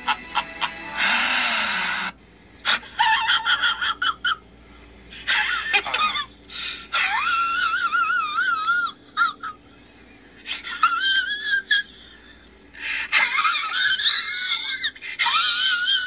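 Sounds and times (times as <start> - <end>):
demonic laugh: 0.0 - 4.4, 5.1 - 9.6, 10.4 - 16.0
high-pitched wavering laugh: 0.0 - 4.5, 5.2 - 16.0
breathy burst: 1.0 - 2.2.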